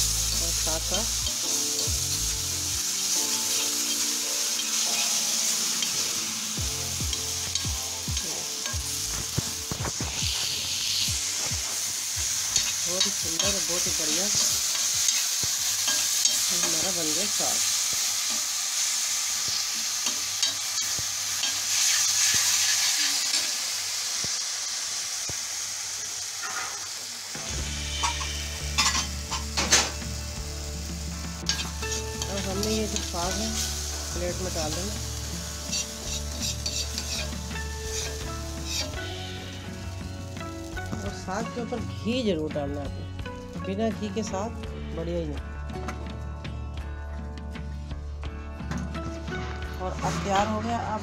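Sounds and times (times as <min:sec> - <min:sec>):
greens sizzling in hot fat: 0:00.0 - 0:46.5, 0:49.2 - 0:51.0
steel spoon scraping griddle: 0:12.5 - 0:17.0, 0:26.4 - 0:26.9, 0:27.9 - 0:30.0, 0:31.5 - 0:33.7, 0:35.6 - 0:39.1
steel ladle scraping pan: 0:26.4 - 0:26.9, 0:27.8 - 0:30.0, 0:35.6 - 0:39.0.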